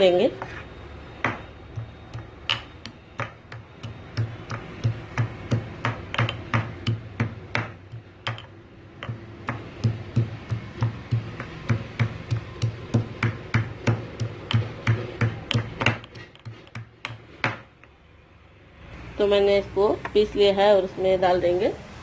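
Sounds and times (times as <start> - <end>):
pestle pounding in stone mortar: 1.2 - 17.7.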